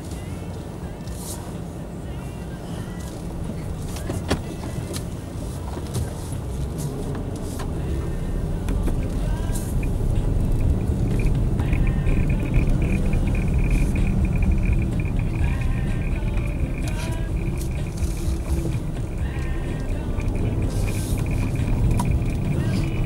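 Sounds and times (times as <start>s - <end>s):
car engine and road rumble: 0.0s - 23.0s
high pulsing tone: 9.2s - 23.0s.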